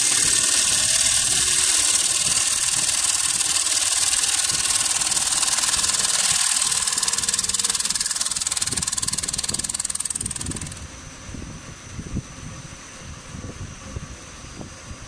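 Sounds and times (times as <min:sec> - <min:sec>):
wood lathe cutting hiss: 0:00.0 - 0:10.9.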